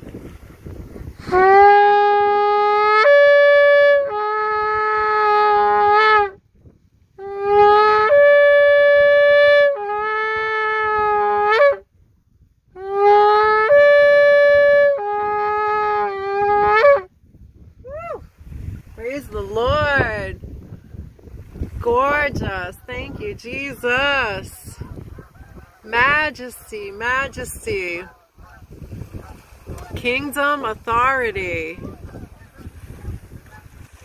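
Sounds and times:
shofar horn blasts: 1.2 - 6.4, 7.2 - 11.9, 12.7 - 17.2, 25.9 - 28.1.

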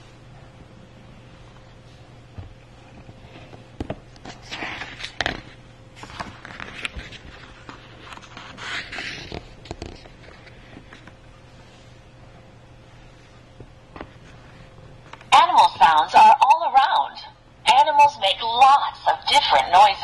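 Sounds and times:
page turning with paper swishes: 2.8 - 12.0.

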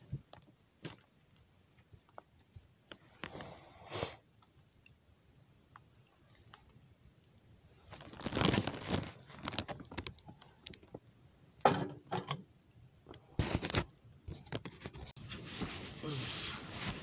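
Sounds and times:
wood fire crackling and popping: 0.0 - 16.1.

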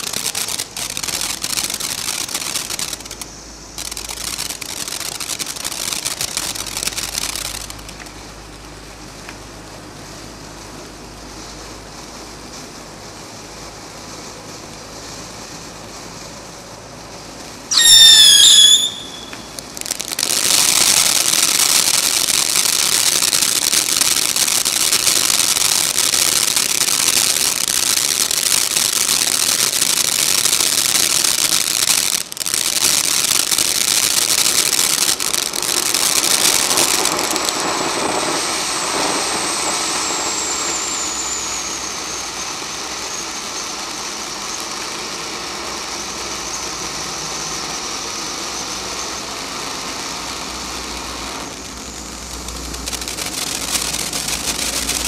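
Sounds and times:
firework hissing and crackling: 0.0 - 55.0
firework whistling: 0.0 - 55.0.

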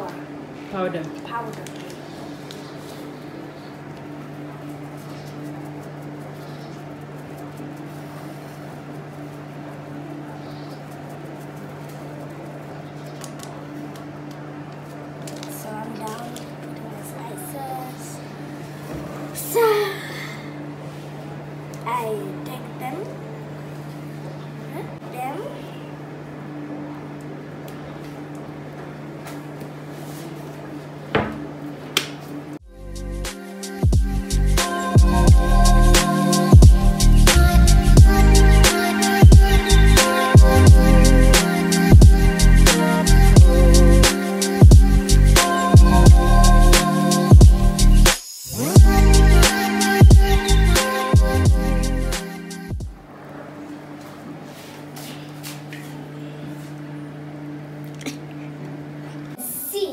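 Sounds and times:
low electrical hum: 0.0 - 59.9
spice shaker rustling: 4.5 - 10.0.

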